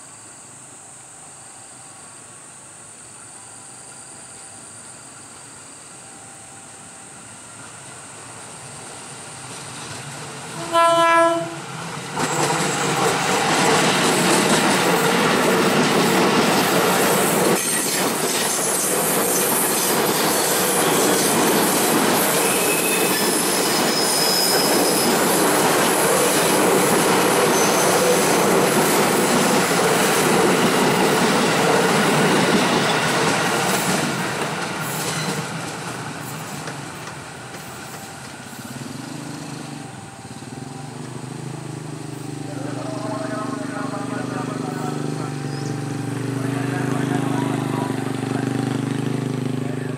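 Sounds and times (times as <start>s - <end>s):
train wheel and rail noise: 0.0s - 49.9s
train horn blast: 10.5s - 11.7s
high wheel squeal: 12.2s - 15.2s, 16.4s - 33.1s, 37.5s - 49.9s.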